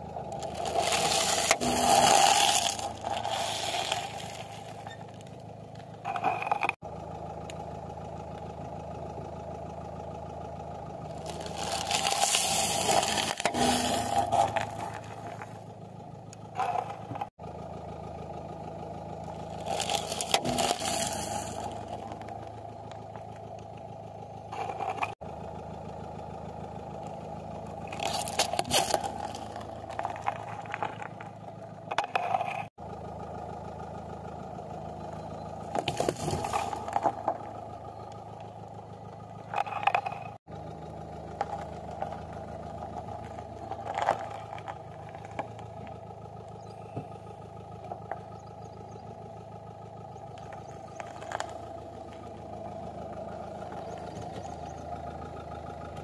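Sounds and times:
car engine running: 0.0s - 56.0s
tyre crushing objects: 11.2s - 15.6s, 35.7s - 37.4s.

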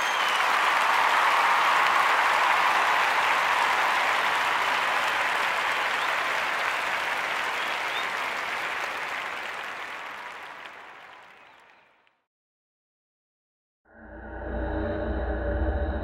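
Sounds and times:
crowd applauding: 0.0s - 12.1s.

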